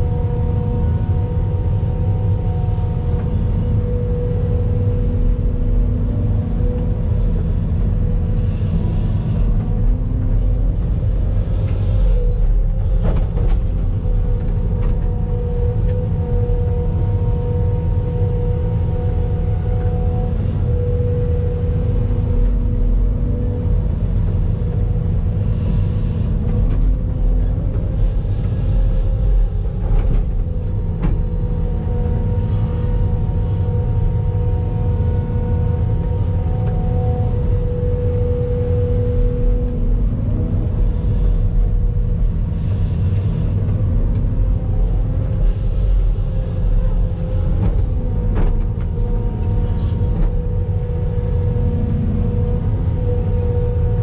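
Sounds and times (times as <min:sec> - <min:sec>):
excavator engine rumbling: 0:00.0 - 0:54.0
hydraulic whine: 0:00.0 - 0:54.0.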